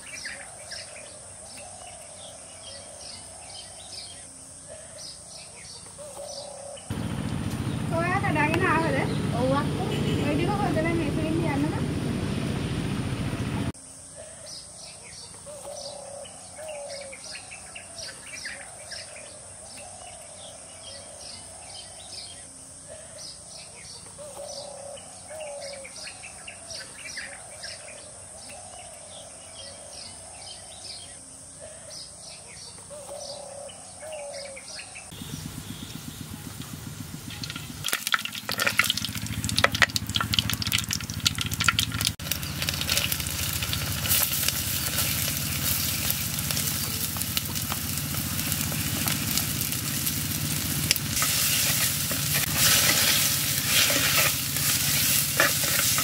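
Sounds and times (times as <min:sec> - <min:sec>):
birds chirping: 0:00.0 - 0:56.0
oil crackling and sizzling: 0:35.1 - 0:56.0.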